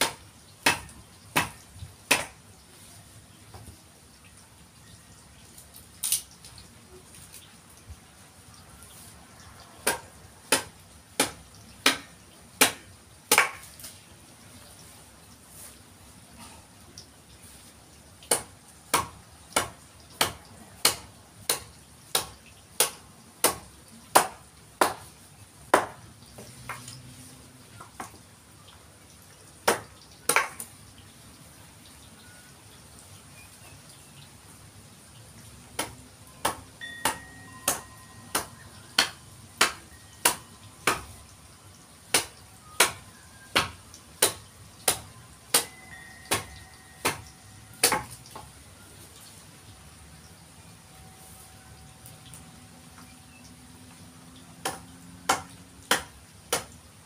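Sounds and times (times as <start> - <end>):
mallet striking chisel into log: 35.8 - 41.1, 43.6 - 48.1.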